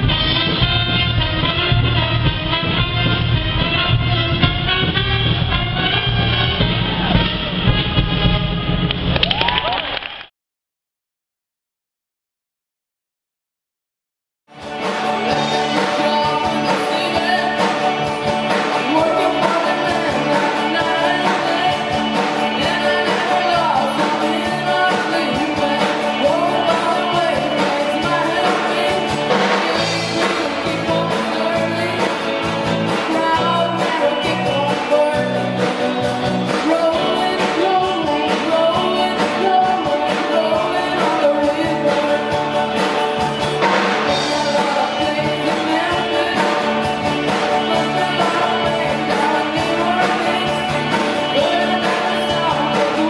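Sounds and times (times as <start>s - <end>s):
acoustic and electric guitars: 14.5s - 53.0s
person singing: 14.7s - 53.0s.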